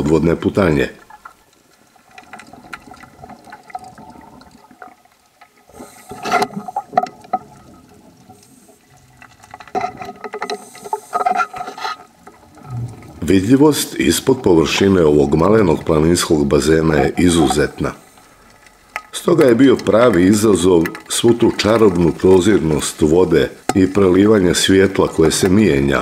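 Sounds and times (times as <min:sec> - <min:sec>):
faint crackling: 0:00.0 - 0:26.0
underwater breath bubbles: 0:05.6 - 0:09.3, 0:12.4 - 0:13.5.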